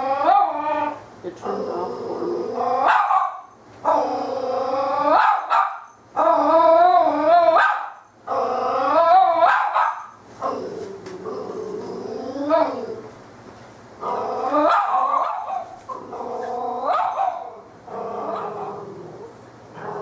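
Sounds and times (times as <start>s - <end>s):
puppy barking: 2.8s - 3.5s, 5.1s - 5.9s, 7.5s - 8.0s, 9.3s - 10.1s, 14.6s - 15.8s, 16.8s - 17.5s.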